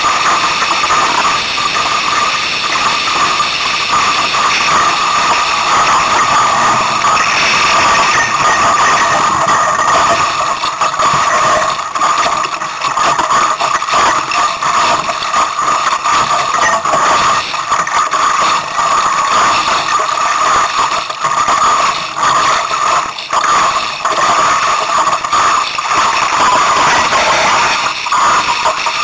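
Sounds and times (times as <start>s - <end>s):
gusty wind on microphone: 0.4s - 12.1s
steady high tone: 1.7s - 11.6s.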